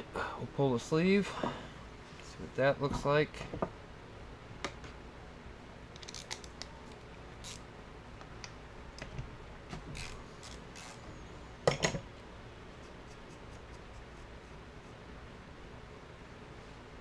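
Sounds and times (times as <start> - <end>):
metallic clicks and scrapes: 5.9 - 7.6.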